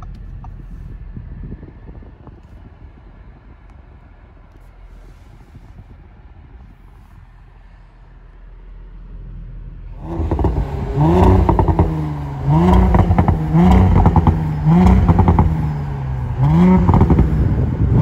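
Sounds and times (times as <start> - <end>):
car engine revving: 9.8 - 18.0.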